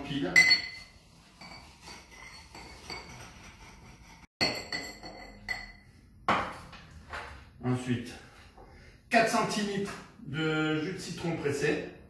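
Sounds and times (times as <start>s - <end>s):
muddler clinking against glass: 0.3s - 3.4s, 4.4s - 5.8s.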